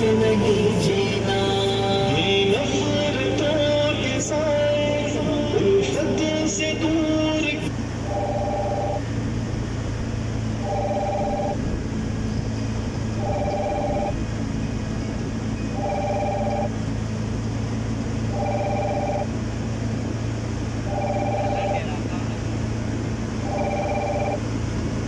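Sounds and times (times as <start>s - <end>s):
steady low hum: 0.0s - 25.0s
phone ringing: 8.1s - 9.0s, 10.6s - 11.6s, 13.2s - 14.2s, 15.6s - 16.8s, 18.3s - 19.4s, 20.9s - 21.9s, 23.4s - 24.5s.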